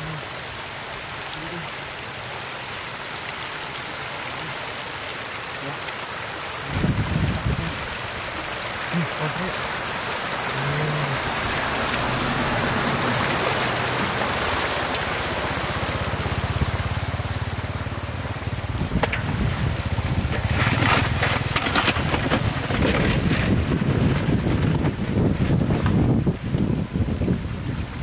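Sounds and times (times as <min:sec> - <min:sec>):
shallow water flowing over mud: 0:00.0 - 0:28.0
knocks and rustling: 0:18.9 - 0:26.1.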